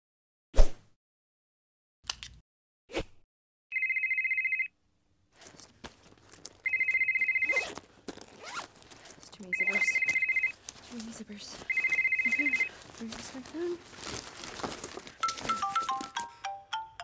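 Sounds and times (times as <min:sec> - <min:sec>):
phone ringing in a bag: 0:03.7 - 0:04.7, 0:06.6 - 0:07.8, 0:09.4 - 0:13.5, 0:15.2 - 0:16.9
rummaging through a bag: 0:05.3 - 0:16.3.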